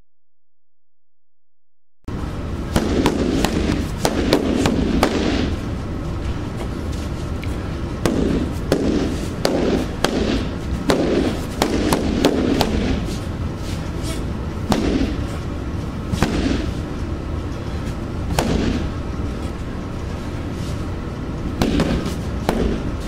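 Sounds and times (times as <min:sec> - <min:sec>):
steady low rumble: 0:02.1 - 0:23.0
stick striking punching bag: 0:02.7 - 0:05.6, 0:08.0 - 0:13.2, 0:14.6 - 0:15.3, 0:16.1 - 0:16.8, 0:18.3 - 0:18.9, 0:21.6 - 0:23.0.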